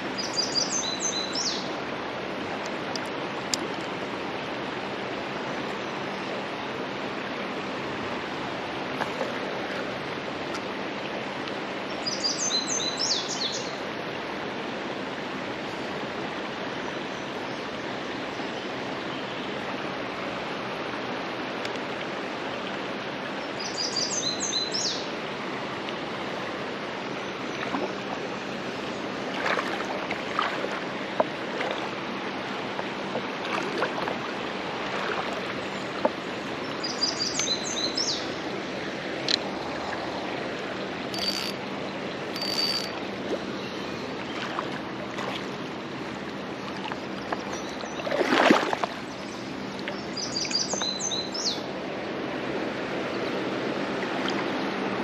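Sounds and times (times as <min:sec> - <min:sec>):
river water flowing over rocks: 0:00.0 - 0:55.0
bird chirping: 0:41.2 - 0:41.6, 0:42.4 - 0:42.9.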